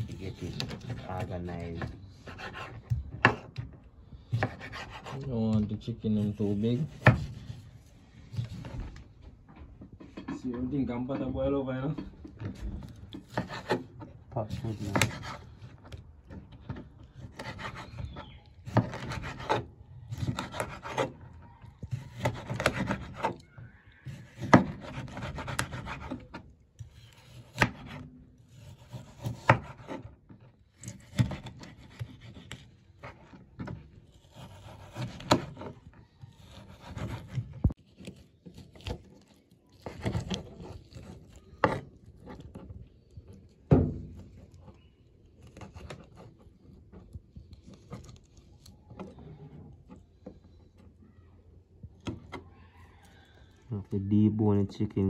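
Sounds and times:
knife cutting through meat: 0.0 - 3.6, 4.3 - 5.4, 6.0 - 8.8, 12.6 - 15.9, 17.1 - 43.5.

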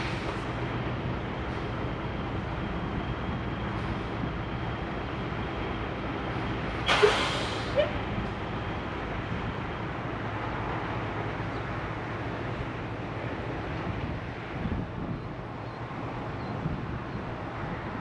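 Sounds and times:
diesel truck engine idling: 0.0 - 17.2
air brake hiss: 6.8 - 7.9.

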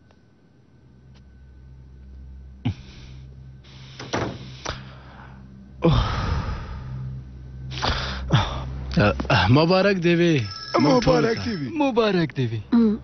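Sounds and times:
low steady hum: 0.0 - 13.0
door rattling: 4.0 - 4.5
door thuds and clicks: 4.0 - 4.5.

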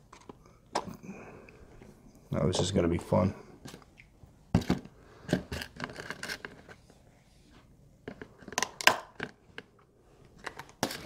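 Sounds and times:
plastic clicks and scrapes: 4.6 - 6.9.

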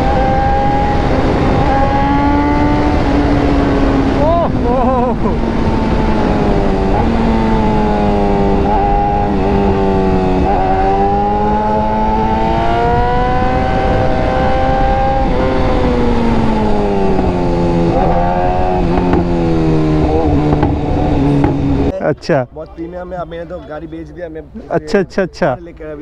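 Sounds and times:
wind rumble: 0.0 - 22.0.

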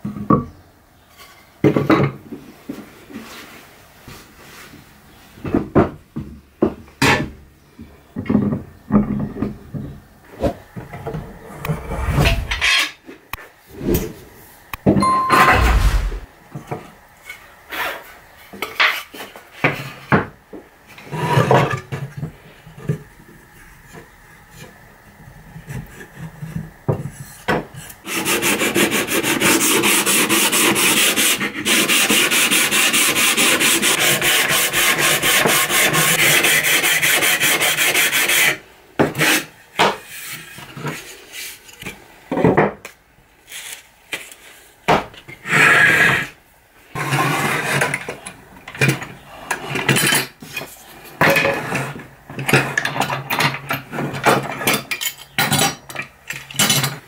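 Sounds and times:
file rasping on wood: 28.1 - 38.6.

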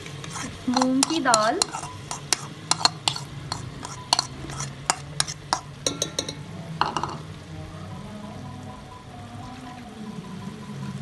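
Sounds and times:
utensils clicking against pot: 0.0 - 7.3
low steady hum: 0.0 - 11.0.

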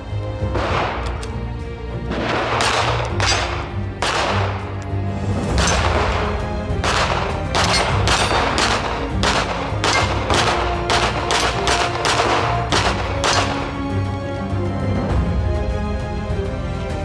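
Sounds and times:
background music: 0.0 - 17.0
pistol shots: 0.5 - 1.3, 2.1 - 4.9, 5.6 - 13.9.

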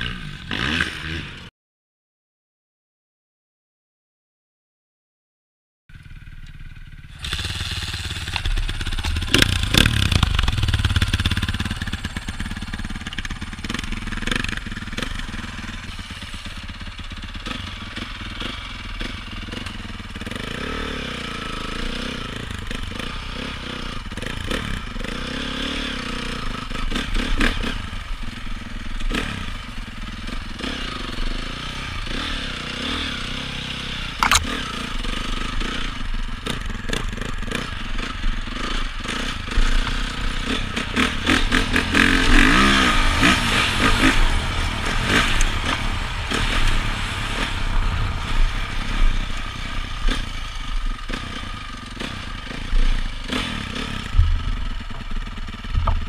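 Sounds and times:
dirt bike engine revving: 0.0 - 1.5, 5.9 - 56.0
dirt bike kick-started: 5.9 - 19.9, 34.2 - 37.8, 50.0 - 56.0.

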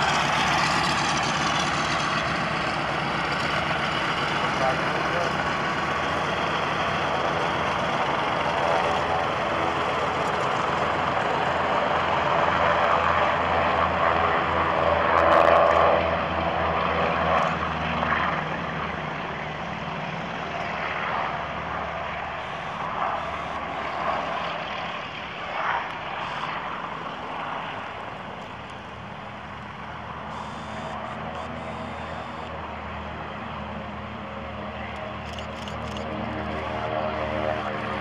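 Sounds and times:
propeller aircraft engines droning: 0.0 - 38.0.

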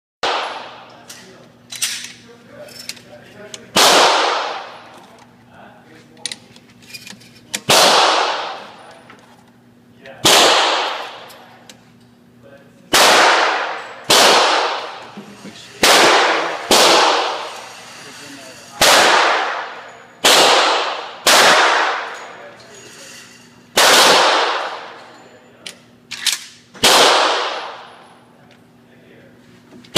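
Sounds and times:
gunshots with echo: 0.2 - 0.8, 3.7 - 4.8, 7.7 - 8.7, 10.2 - 11.3, 12.9 - 15.0, 15.8 - 17.6, 18.8 - 22.4, 23.8 - 25.0, 26.8 - 28.0
gun handling clicks: 25.6 - 26.6.

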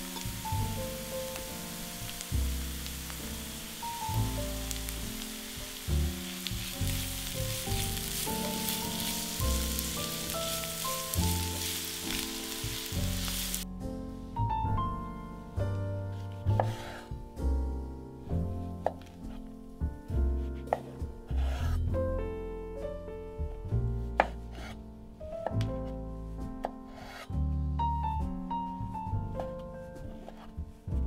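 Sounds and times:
food sizzling in oil: 0.0 - 13.6
background music: 0.0 - 31.0.

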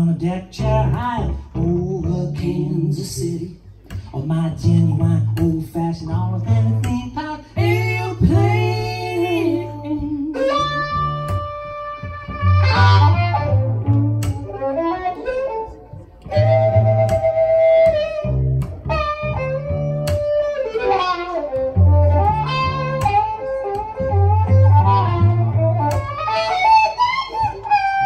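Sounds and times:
rhythmic cello bass line: 0.0 - 28.0
electric violin melody: 6.0 - 28.0.

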